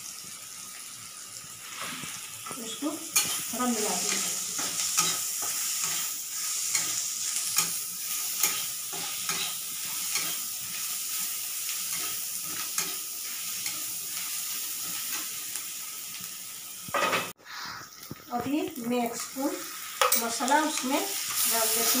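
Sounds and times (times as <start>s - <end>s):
onions sizzling in hot oil: 0.0s - 22.0s
metal spatula scraping pan: 2.7s - 10.4s.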